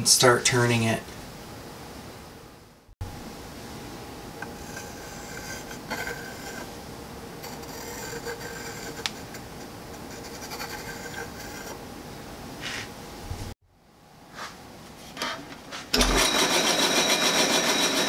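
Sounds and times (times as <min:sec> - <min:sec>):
pencil scratching on wood: 0:04.4 - 0:06.7, 0:07.4 - 0:11.8.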